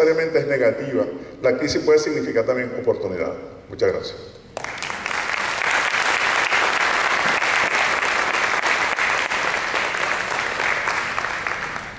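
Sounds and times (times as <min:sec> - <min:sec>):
audience applauding: 0:04.6 - 0:11.9.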